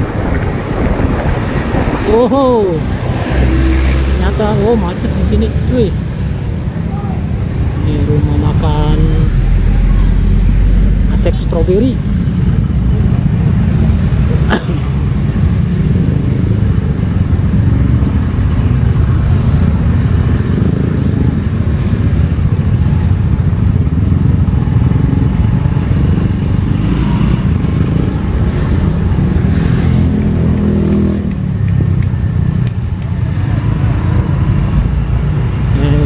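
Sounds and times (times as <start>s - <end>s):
cars in traffic: 0.0s - 36.0s
motorcycle engines rumbling: 0.0s - 36.0s.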